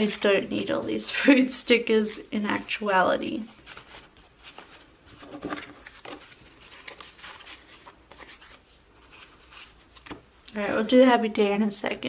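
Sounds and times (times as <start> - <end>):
paper sheets rustling: 2.8 - 11.1.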